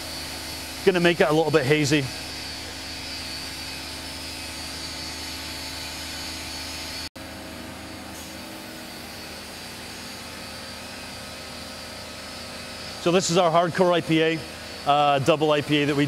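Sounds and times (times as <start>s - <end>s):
machinery hum and hiss: 0.0s - 16.0s.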